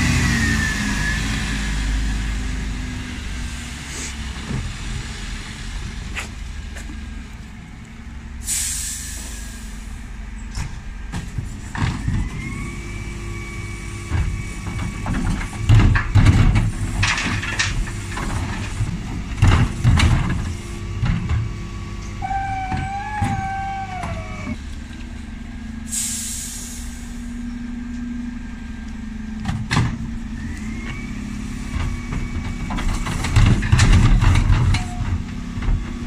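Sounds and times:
diesel engine running: 0.0s - 36.0s
air brake hiss: 3.9s - 4.2s, 8.4s - 10.0s, 25.9s - 27.4s
hydraulic bin lift whine: 22.1s - 24.6s
bins banging: 22.2s - 24.6s.

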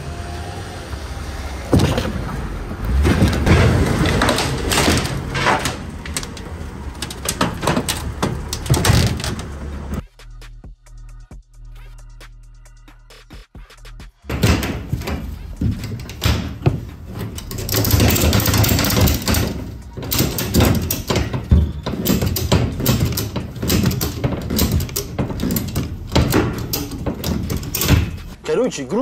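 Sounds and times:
ratchet strap clicking and clanking: 3.4s - 10.0s, 14.3s - 28.4s.

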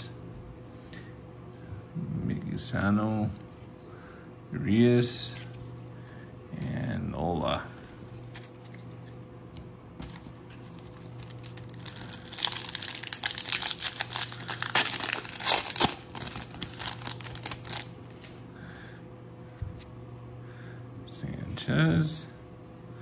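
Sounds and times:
foil wrapper tearing and crinkling: 10.0s - 18.4s.

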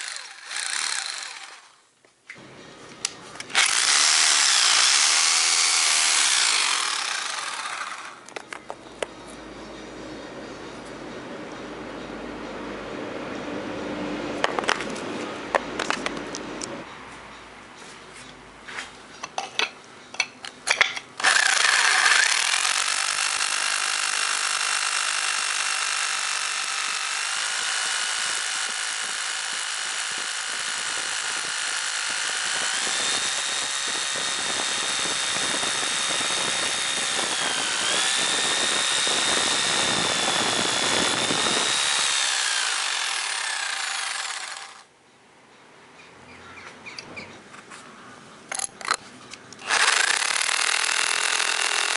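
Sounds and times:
rotary hammer drilling into rock: 0.0s - 1.7s, 3.5s - 8.2s, 21.2s - 44.9s, 49.6s - 51.9s.

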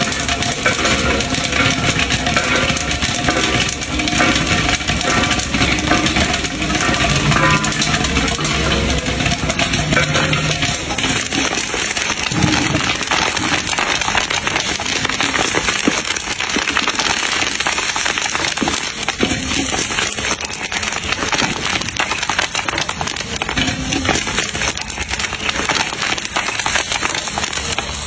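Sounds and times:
chili peppers sizzling in wok: 0.0s - 28.0s.

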